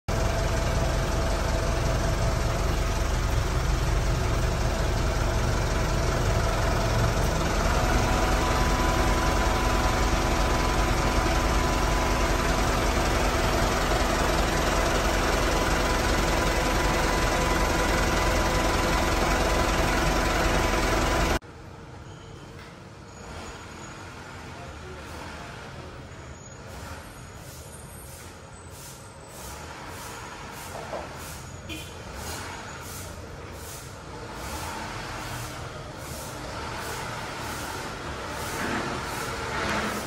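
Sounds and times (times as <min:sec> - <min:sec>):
engine idling: 0:00.1 - 0:21.4.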